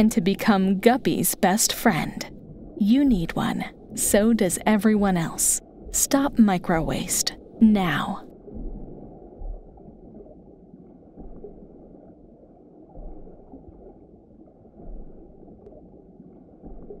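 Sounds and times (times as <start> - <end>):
muffled underwater rumble: 0.0 - 17.0.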